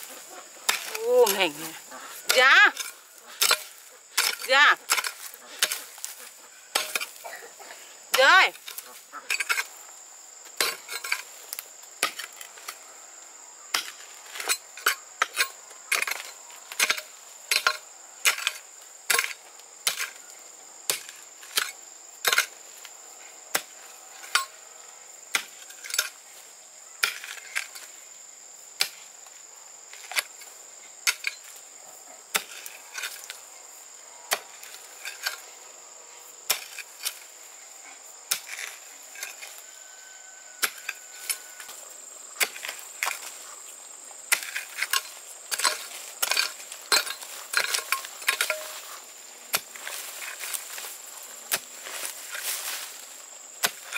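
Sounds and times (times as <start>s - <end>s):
high-pitched insect drone: 32.7s - 42.3s.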